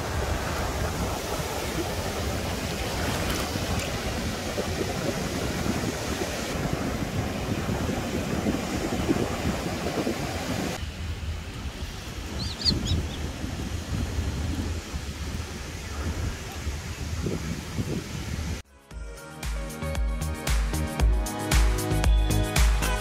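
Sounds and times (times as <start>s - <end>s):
surf washing up beach: 0.0s - 18.6s
wind buffeting microphone: 0.0s - 18.6s
bird chirping: 12.4s - 13.2s.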